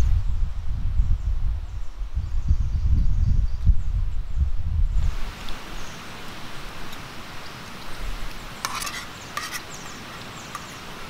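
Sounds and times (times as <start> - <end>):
spoon scraping a pan: 8.6 - 10.9.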